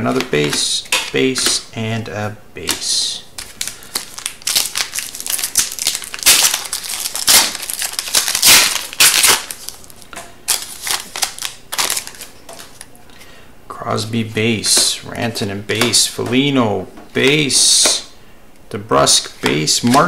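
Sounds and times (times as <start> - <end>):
plastic sleeves crinkling: 2.6 - 13.2.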